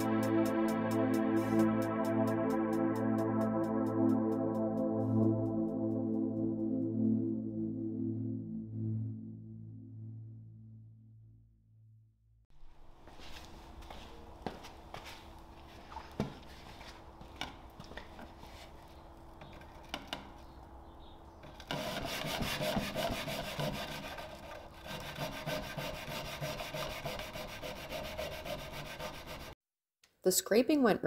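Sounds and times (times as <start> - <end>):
sandpaper sanding wood: 21.7 - 29.6.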